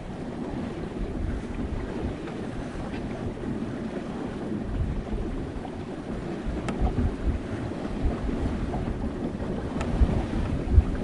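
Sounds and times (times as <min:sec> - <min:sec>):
water washing past boat: 0:00.0 - 0:11.0
wind rumble on microphone: 0:00.0 - 0:11.0
faint sharp ticks: 0:06.6 - 0:06.8.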